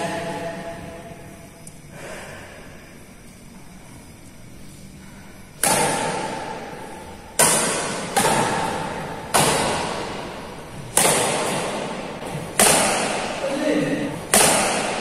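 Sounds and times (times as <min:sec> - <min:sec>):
shuttlecock hit with rackets: 0:05.6 - 0:15.0.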